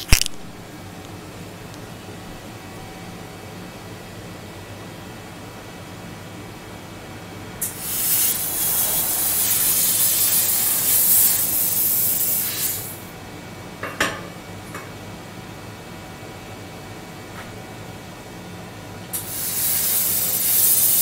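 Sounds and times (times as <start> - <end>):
low steady hum: 0.0 - 7.7
laser cutting metal spraying hiss: 7.6 - 13.0, 19.2 - 21.0.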